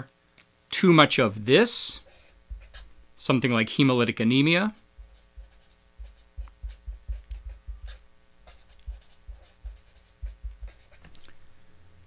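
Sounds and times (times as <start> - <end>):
marker writing on paper: 2.0 - 2.9, 5.0 - 11.1.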